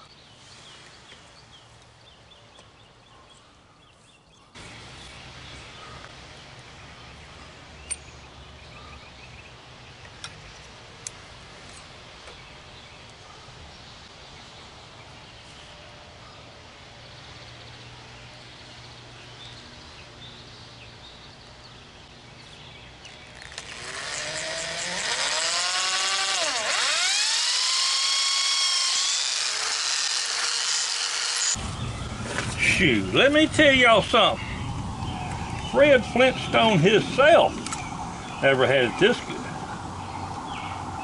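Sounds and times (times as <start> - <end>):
electric drill boring into wood: 23.4 - 31.6.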